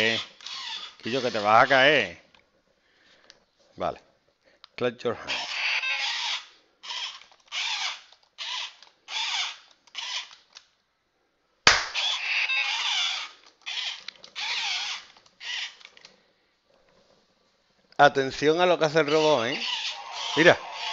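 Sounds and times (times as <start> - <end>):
toy robot motors whirring: 0.0 - 2.0, 5.3 - 10.6, 12.0 - 16.1, 19.0 - 20.9.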